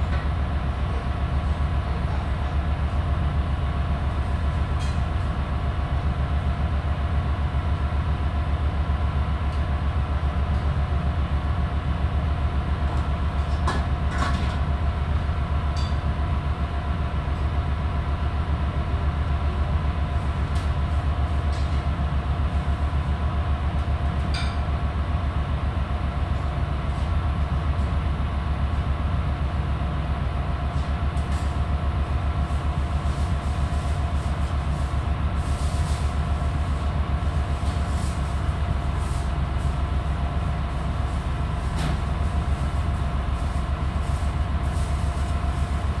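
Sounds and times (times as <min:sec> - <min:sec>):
heavy machinery engine drone: 0:00.0 - 0:46.0.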